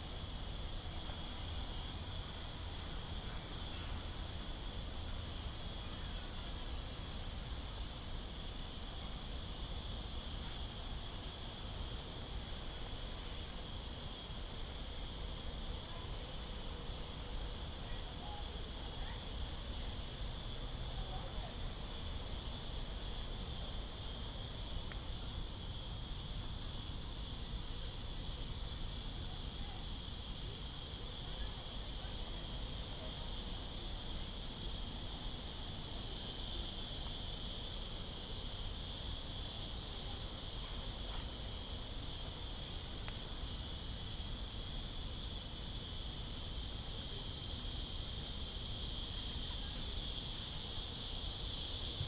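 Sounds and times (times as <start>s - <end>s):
cicadas chorus: 0.0s - 52.0s.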